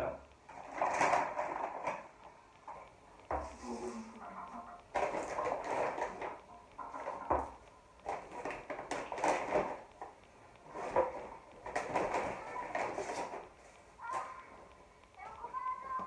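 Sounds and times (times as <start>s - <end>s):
paper bag rustling: 3.9s - 7.3s.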